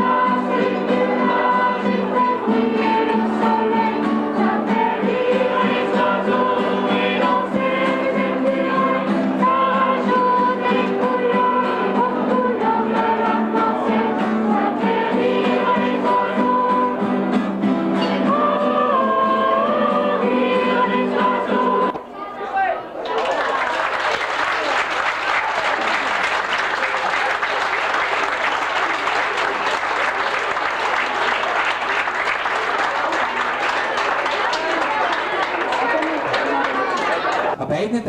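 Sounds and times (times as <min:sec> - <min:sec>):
strummed acoustic guitars: 0:00.0 - 0:21.9
children's choir singing: 0:00.0 - 0:22.1, 0:25.6 - 0:37.6.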